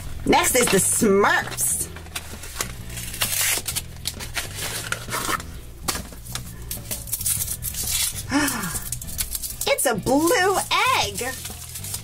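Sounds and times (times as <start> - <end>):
foil wrapper crinkling and tearing: 1.5 - 12.0
cardboard box opened: 1.9 - 5.5.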